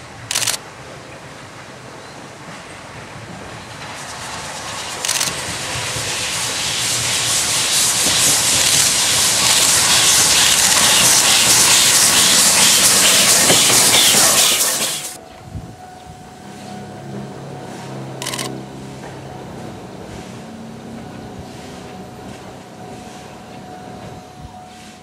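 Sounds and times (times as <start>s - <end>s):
steam locomotive chuffing: 0.0s - 15.2s, 16.4s - 25.0s
steam hissing: 2.2s - 15.2s.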